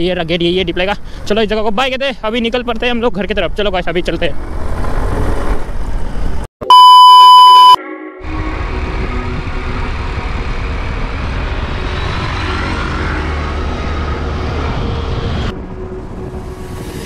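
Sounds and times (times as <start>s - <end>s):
road noise: 0.0s - 6.5s, 8.3s - 17.0s
wind buffeting microphone: 8.5s - 17.0s.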